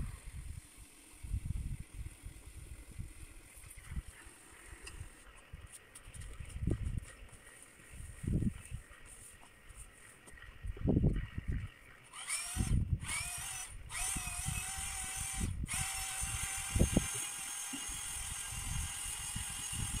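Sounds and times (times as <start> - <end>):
electric drill spinning: 12.1 - 20.0.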